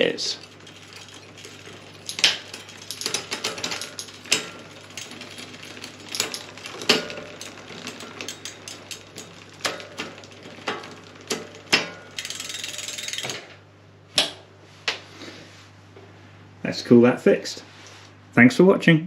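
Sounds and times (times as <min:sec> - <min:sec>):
bike chain rattling over sprockets: 0:00.0 - 0:13.6
derailleur clacking: 0:00.0 - 0:14.4.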